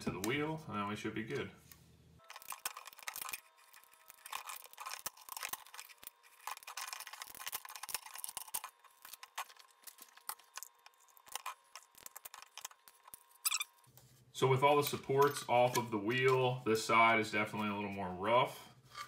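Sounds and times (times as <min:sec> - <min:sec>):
plastic snapping and crackling: 0:02.3 - 0:13.6.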